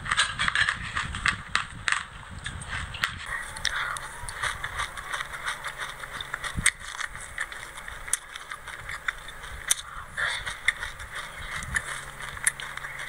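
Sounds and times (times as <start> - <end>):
seeds rustling: 3.3 - 13.0.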